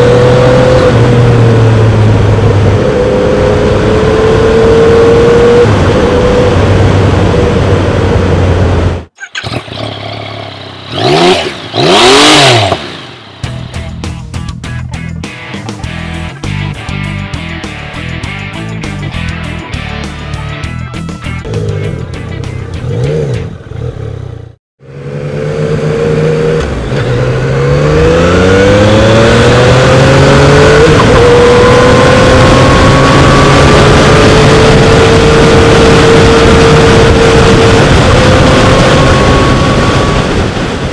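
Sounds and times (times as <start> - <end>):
motorcycle engine under way: 0.0 - 13.6, 21.4 - 40.9
motorcycle engine idling and revving: 0.0 - 40.9
music: 13.4 - 23.6
wind rush: 28.0 - 40.9.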